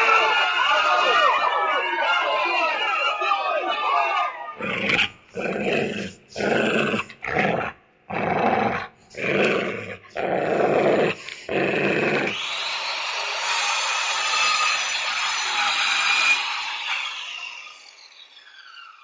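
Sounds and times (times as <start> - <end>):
wolf growling and snarling: 4.6 - 12.4
saw sound: 10.5 - 19.0.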